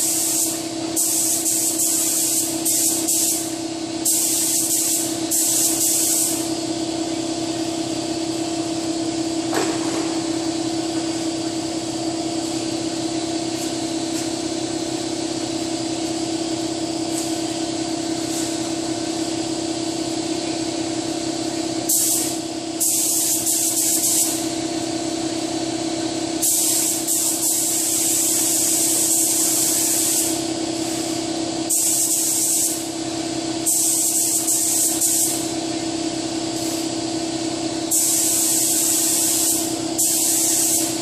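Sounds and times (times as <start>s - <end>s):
air spray gun hissing: 0.0s - 41.0s
steady machine hum: 0.0s - 41.0s
knock: 9.5s - 10.2s.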